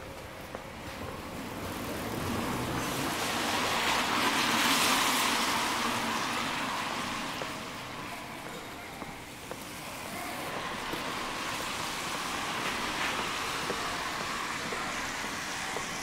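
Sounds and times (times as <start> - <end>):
car tyres hissing on wet road: 1.0 - 16.0.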